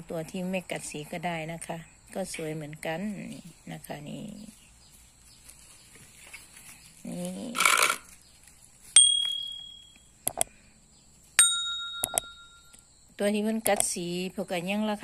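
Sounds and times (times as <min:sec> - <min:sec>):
quick clicks: 0:07.6 - 0:08.1, 0:10.2 - 0:10.5, 0:12.0 - 0:12.3, 0:13.6 - 0:13.9
bright bell dings: 0:09.0 - 0:10.0, 0:11.4 - 0:12.8.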